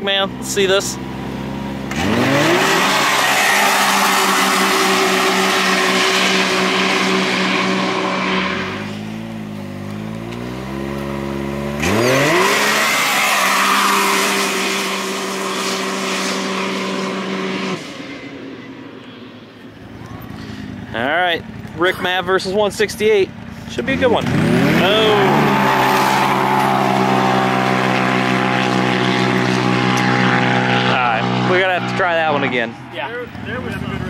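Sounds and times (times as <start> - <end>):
engine revving at full throttle: 0.1 - 18.4, 23.8 - 34.0.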